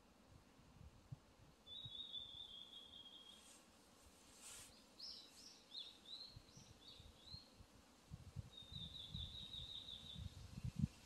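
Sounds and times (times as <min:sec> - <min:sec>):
songbirds chirping and trilling: 0:01.6 - 0:03.6, 0:04.5 - 0:07.6, 0:08.5 - 0:11.0
wind rumbling on microphone: 0:06.3 - 0:11.0.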